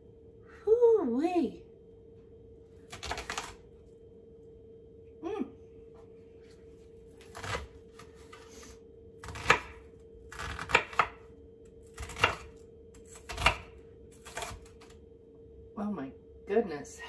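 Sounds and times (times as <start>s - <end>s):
faint hum: 0.0s - 17.0s
knife chopping on wooden board: 9.2s - 11.2s, 11.9s - 14.9s.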